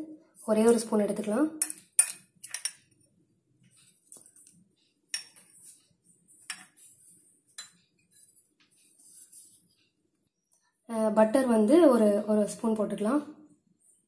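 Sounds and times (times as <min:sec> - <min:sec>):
metal spoon clinking on bowl: 0:01.6 - 0:02.9, 0:05.1 - 0:05.4, 0:07.6 - 0:07.8.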